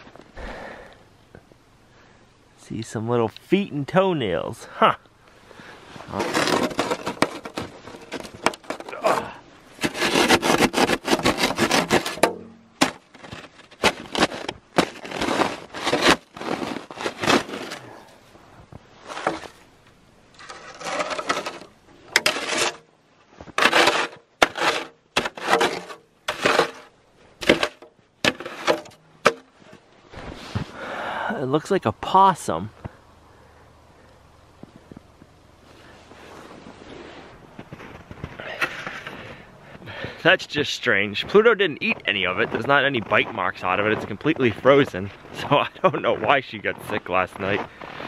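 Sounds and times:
snow shovel scraping frozen snow: 0:05.6 - 0:18.1, 0:19.0 - 0:19.7, 0:20.4 - 0:31.0, 0:35.7 - 0:40.1.

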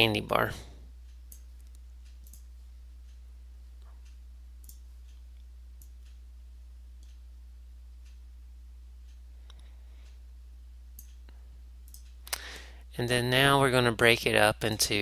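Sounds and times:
low electrical hum: 0:00.0 - 0:15.0
computer mouse clicks: 0:01.3 - 0:02.5, 0:11.8 - 0:12.5.

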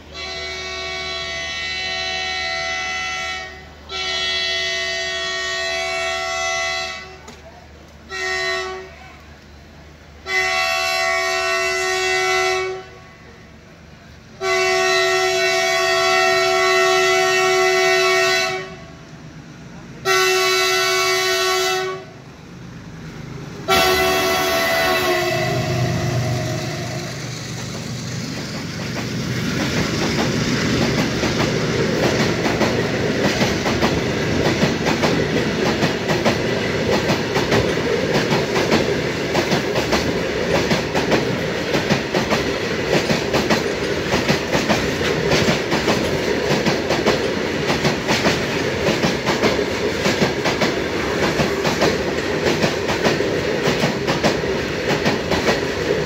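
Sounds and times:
locomotive engine rumbling: 0:00.0 - 0:56.0
locomotive air horn blasts: 0:00.1 - 0:07.3, 0:08.1 - 0:09.0, 0:10.2 - 0:13.4, 0:14.4 - 0:19.0, 0:20.0 - 0:22.2, 0:23.7 - 0:27.2
train wheels clacking over rail joints: 0:26.3 - 0:56.0.

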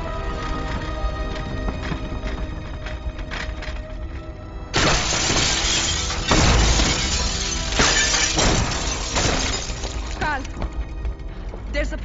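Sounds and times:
film music: 0:00.0 - 0:12.0
glass shattering: 0:04.7 - 0:10.4.

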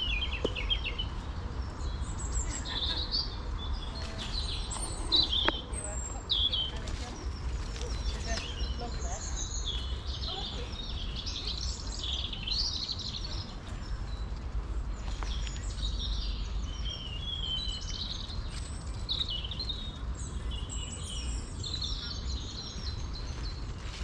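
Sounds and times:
songbirds singing: 0:00.0 - 0:24.0.

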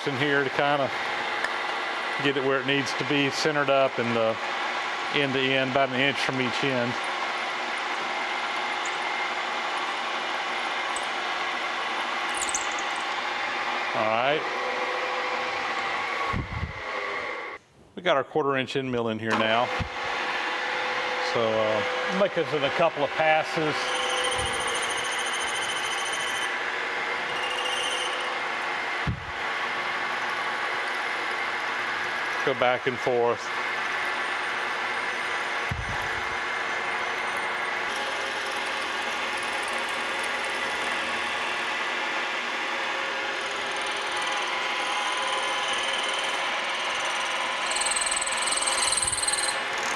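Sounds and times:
drill bit cutting metal: 0:00.4 - 0:13.5, 0:21.8 - 0:49.9
high squealing whine: 0:21.3 - 0:29.4.

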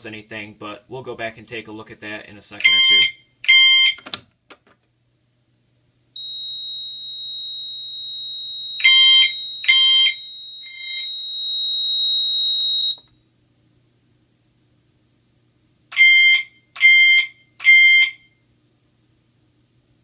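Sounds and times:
steady high-pitched alarm tone: 0:06.2 - 0:13.0.

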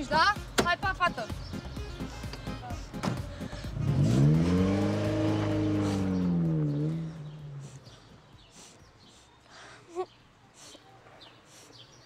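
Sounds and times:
car accelerating away: 0:03.1 - 0:07.7.

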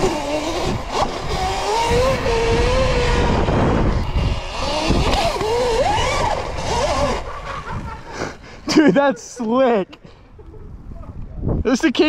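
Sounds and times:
electric motor whine: 0:00.0 - 0:07.8
wind buffeting microphone: 0:00.0 - 0:08.8, 0:10.0 - 0:12.0.

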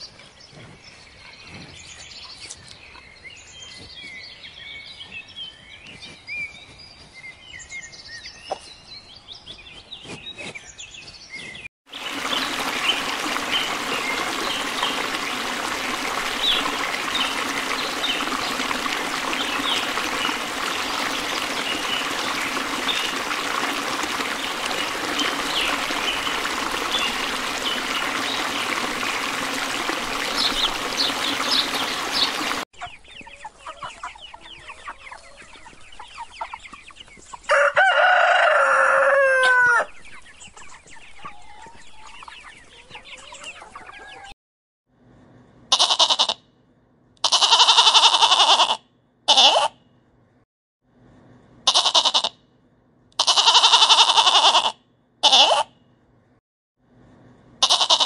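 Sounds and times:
stream running: 0:11.9 - 0:32.7
rooster crowing: 0:37.5 - 0:39.9
chicks peeping: 0:39.6 - 0:44.3.

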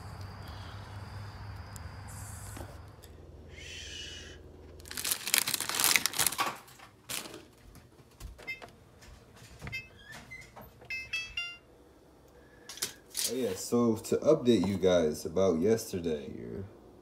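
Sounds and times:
person shushing: 0:03.5 - 0:04.4
oven keypad beeps: 0:08.4 - 0:08.7, 0:09.7 - 0:10.0, 0:10.9 - 0:11.6.

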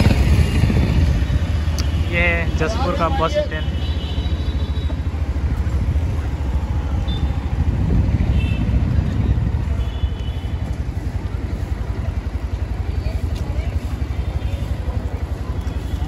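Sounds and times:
wind rumble on microphone: 0:00.0 - 0:02.0, 0:05.0 - 0:15.8
motorcycle engine running: 0:00.0 - 0:16.0.

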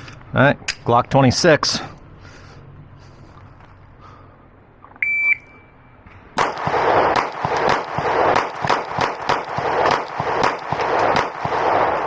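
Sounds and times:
shot timer beep: 0:05.0 - 0:05.8
pistol shots: 0:06.4 - 0:12.0.

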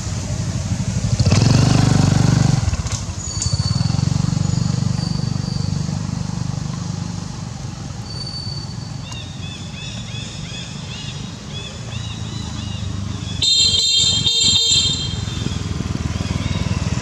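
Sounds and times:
motorbike engine running: 0:12.0 - 0:17.0.

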